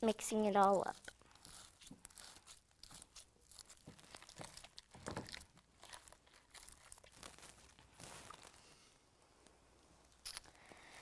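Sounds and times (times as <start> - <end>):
sticky slime crackling: 0.0 - 8.6.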